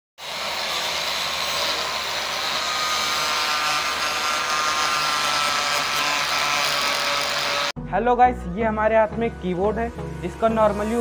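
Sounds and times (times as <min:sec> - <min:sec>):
angle grinder cutting plastic: 0:00.2 - 0:07.8.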